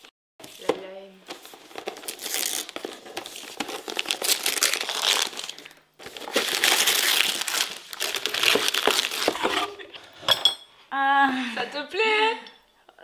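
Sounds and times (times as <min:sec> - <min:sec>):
wrapping paper crinkling and tearing: 0:00.4 - 0:09.8.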